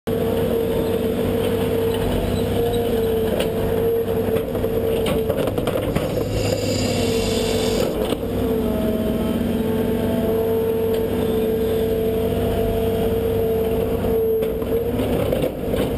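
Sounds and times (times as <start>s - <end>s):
excavator diesel engine whining: 0.1s - 15.9s.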